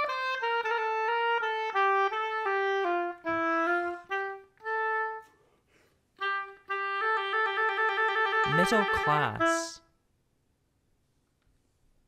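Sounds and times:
solo oboe playing: 0:00.0 - 0:05.5, 0:06.2 - 0:09.9.

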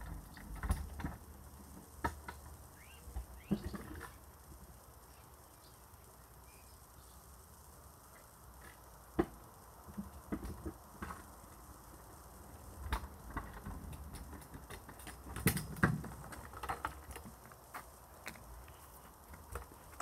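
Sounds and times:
child's footsteps on concrete: 0:17.0 - 0:20.0.

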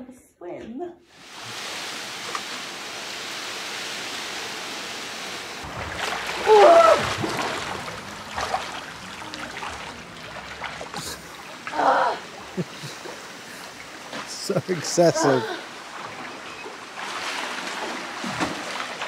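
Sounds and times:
pool water splashing: 0:01.1 - 0:19.0
running water rushing: 0:01.1 - 0:19.0
person exclaiming: 0:06.4 - 0:07.0, 0:14.8 - 0:15.7.

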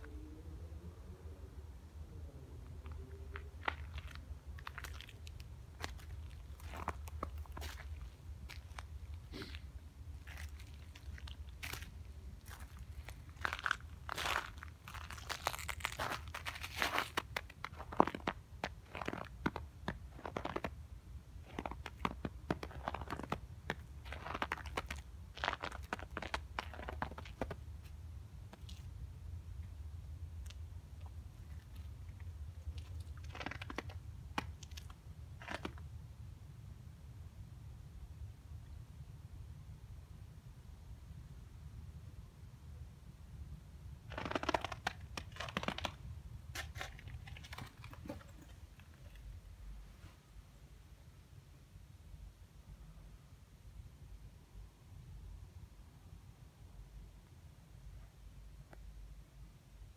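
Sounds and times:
small clicks and crackles: 0:02.8 - 0:08.9, 0:30.4 - 0:35.8, 0:44.1 - 0:49.4
footsteps crunching on snow: 0:02.8 - 0:09.6, 0:10.2 - 0:19.5.

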